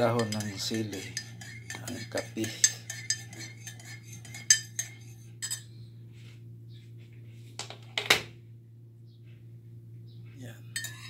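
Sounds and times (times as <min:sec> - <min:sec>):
steady low hum: 0:00.0 - 0:11.0
teaspoon clinking in ceramic mug: 0:00.1 - 0:05.6, 0:10.8 - 0:11.0.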